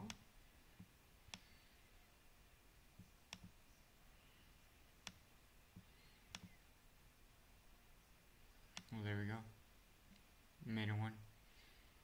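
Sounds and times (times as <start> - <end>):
computer mouse clicking: 3.0 - 3.6, 5.8 - 6.6.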